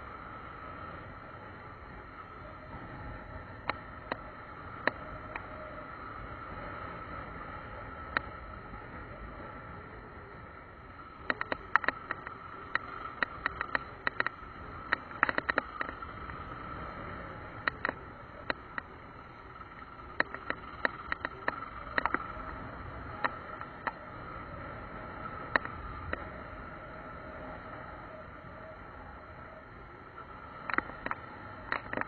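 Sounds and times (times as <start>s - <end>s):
motorcycle engine running: 0.0s - 32.0s
motorcycle clicks and rattles: 11.2s - 16.6s, 17.6s - 22.5s, 30.6s - 32.0s.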